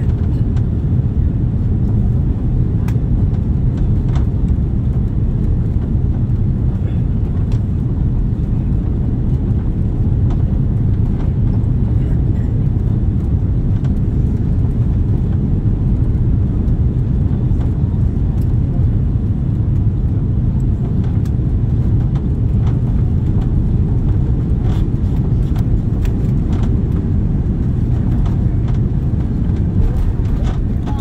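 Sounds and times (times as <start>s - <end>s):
aircraft cabin engine rumble: 0.0s - 31.0s
light clicks and rattles: 20.6s - 31.0s.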